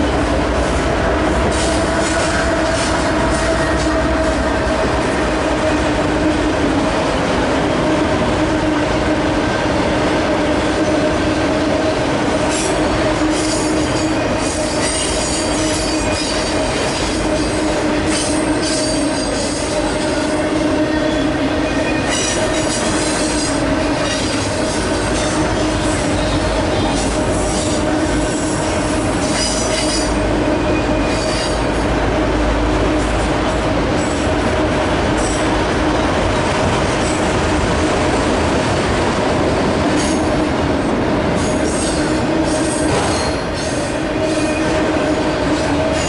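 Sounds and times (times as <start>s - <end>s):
high-pitched wheel squeal: 13.3s - 27.8s.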